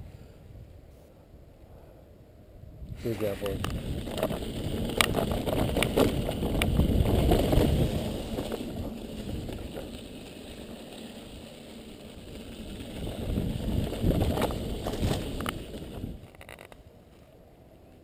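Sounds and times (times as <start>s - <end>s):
bike tyres on dirt trail: 2.9s - 18.0s
bike rattling: 3.0s - 17.3s.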